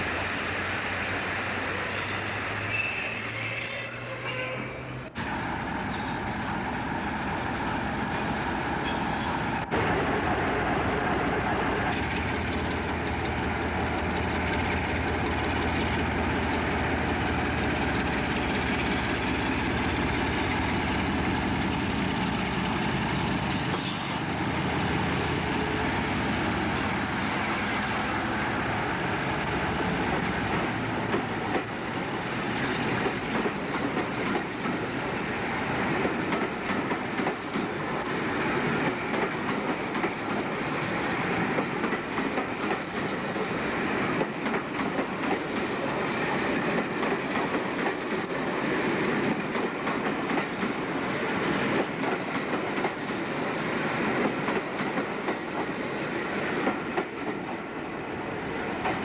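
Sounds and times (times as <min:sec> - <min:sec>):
high squeals: 0:00.0 - 0:05.2
diesel locomotive engine: 0:00.0 - 0:59.0
train wheels clicking over rail joints: 0:29.8 - 0:57.8, 0:58.4 - 0:59.0.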